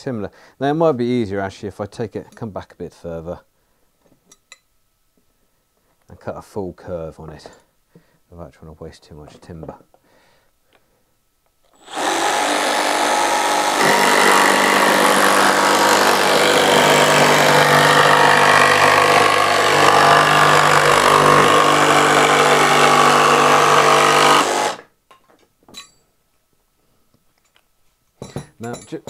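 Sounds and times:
jigsaw cutting plywood: 11.8s - 24.9s.

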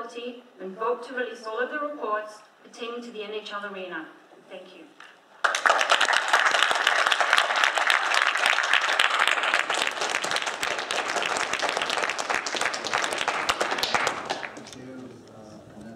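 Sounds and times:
audience applauding: 5.4s - 15.2s.

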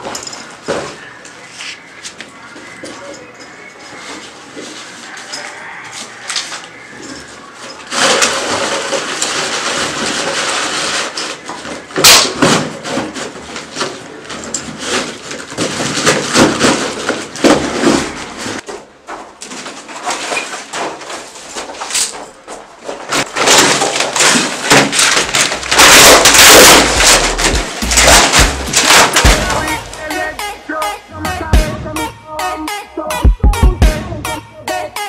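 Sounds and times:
boxes scraping on concrete floor: 3.8s - 30.3s
knocks and clatter: 7.9s - 29.7s.

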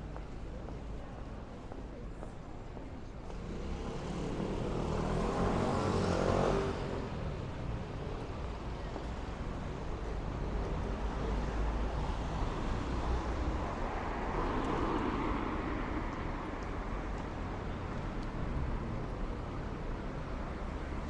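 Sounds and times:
traffic rumble: 0.0s - 21.0s.

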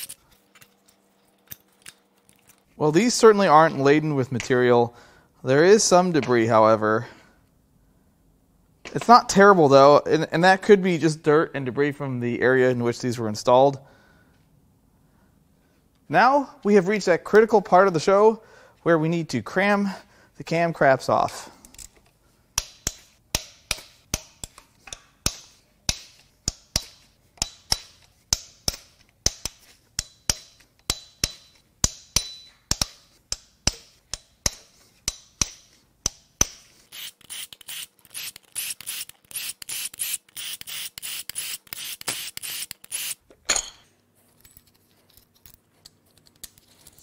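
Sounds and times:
hand ratchet clicking: 22.6s - 43.2s.

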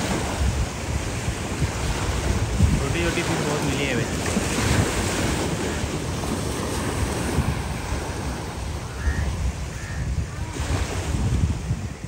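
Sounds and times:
small waves lapping: 0.0s - 12.0s
wind buffeting microphone: 0.0s - 12.0s.

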